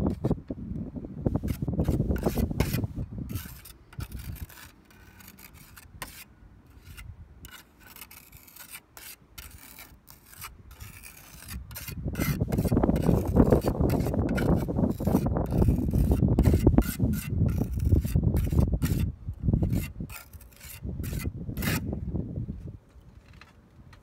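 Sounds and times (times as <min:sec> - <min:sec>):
trowel scraping compound: 0:00.0 - 0:00.4, 0:01.4 - 0:22.0
wind rumbling on microphone: 0:00.0 - 0:04.7, 0:10.6 - 0:23.2.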